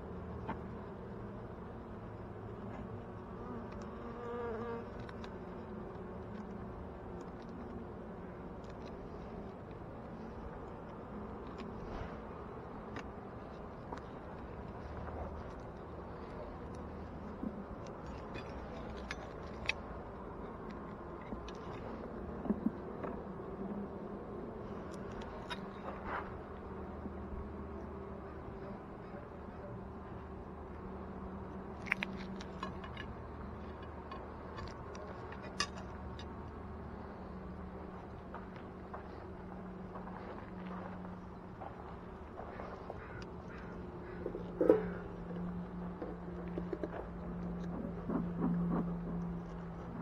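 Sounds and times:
bee flying past close: 0:03.2 - 0:05.0.

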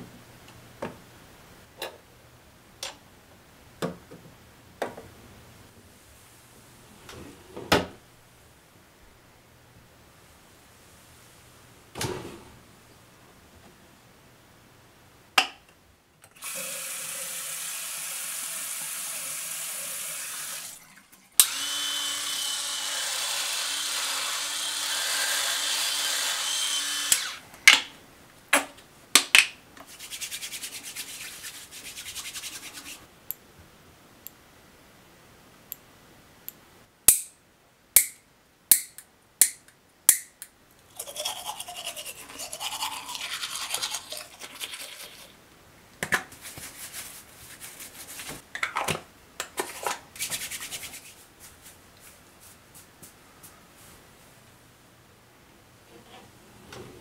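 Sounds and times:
water running from a tap: 0:16.4 - 0:21.3.

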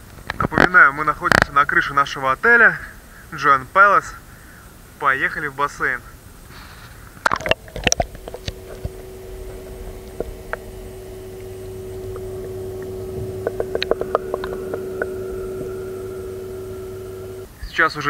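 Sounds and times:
light clicks underwater: 0:07.2 - 0:10.7, 0:11.4 - 0:15.8
water splashing: 0:07.2 - 0:17.5
muffled underwater hum: 0:07.3 - 0:17.5.

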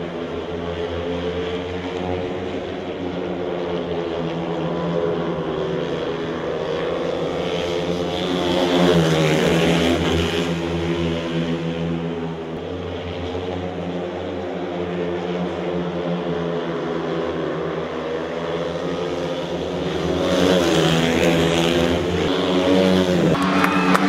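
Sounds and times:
racing motorcycle engines howling: 0:00.0 - 0:24.0.

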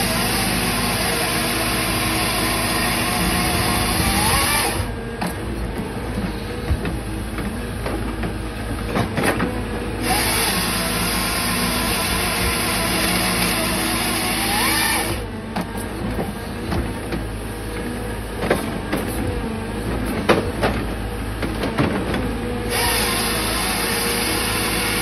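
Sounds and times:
chainsaw cutting log: 0:00.0 - 0:05.0, 0:09.0 - 0:15.3, 0:22.6 - 0:25.0
diesel engine running: 0:00.0 - 0:25.0.

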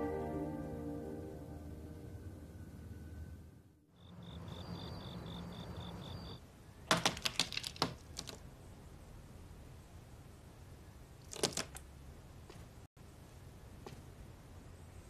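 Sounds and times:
cricket chirping: 0:03.9 - 0:06.4.

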